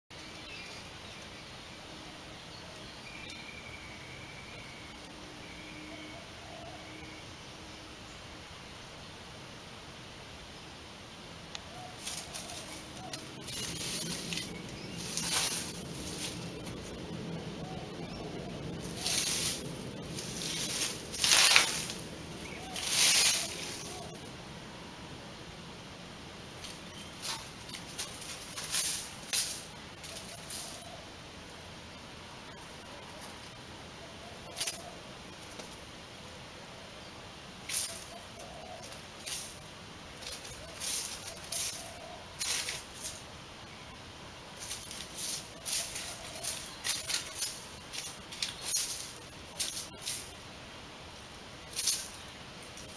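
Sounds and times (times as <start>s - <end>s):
rabbit paws scraping soil and leaves: 11.5s - 24.5s, 26.3s - 31.6s, 32.4s - 36.2s, 37.6s - 52.9s.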